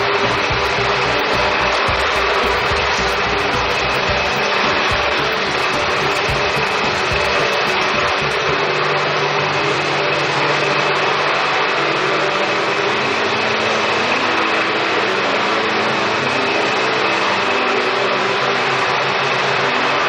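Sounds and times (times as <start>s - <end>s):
electric mixer motor whining: 0.0s - 19.8s.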